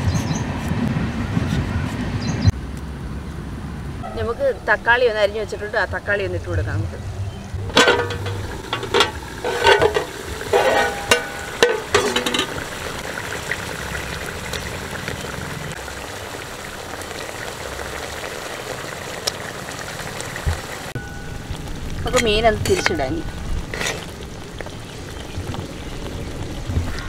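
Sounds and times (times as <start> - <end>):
metal pan and utensils clinking: 7.7 - 12.8, 21.0 - 24.1
curry sizzling in a pan: 7.9 - 27.0.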